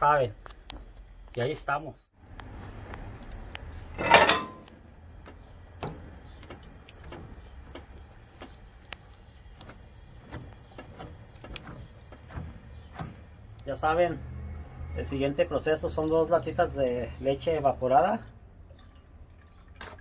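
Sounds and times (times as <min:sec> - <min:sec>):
spoon knocking and scraping pot: 0:04.0 - 0:04.7.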